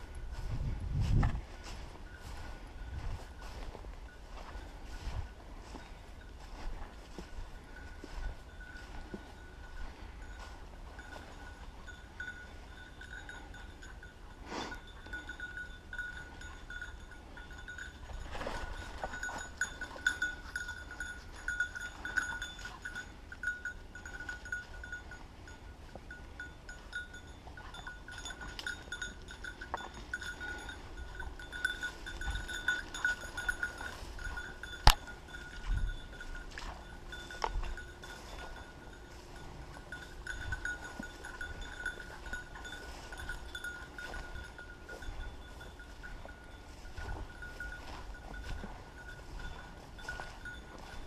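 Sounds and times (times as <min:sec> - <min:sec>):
dog collar bell jingling: 0:07.2 - 0:51.0.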